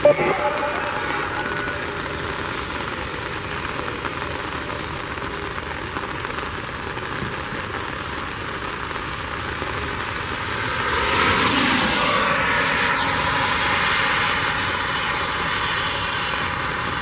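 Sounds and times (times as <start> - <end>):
rain falling: 0.0 - 17.0
traffic hiss on wet road: 0.4 - 17.0
vehicle approaching: 9.9 - 17.0.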